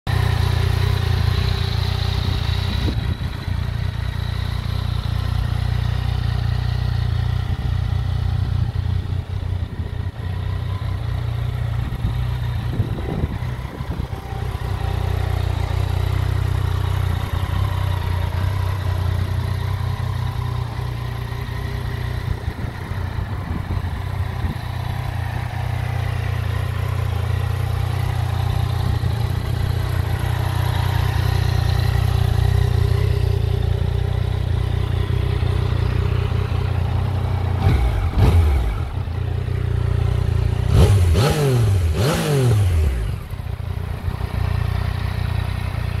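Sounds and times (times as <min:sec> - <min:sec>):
motorcycle engine idling with blips: 0:00.1 - 0:46.0.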